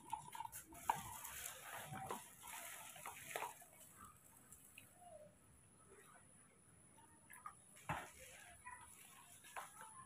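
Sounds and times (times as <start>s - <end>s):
water pouring into plastic cup: 0.0s - 4.9s.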